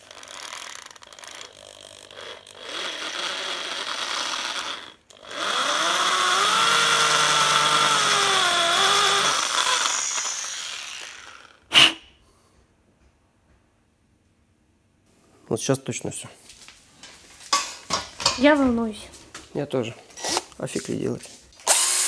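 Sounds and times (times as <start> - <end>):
power drill milling metal: 0.0 - 11.6, 21.6 - 22.0.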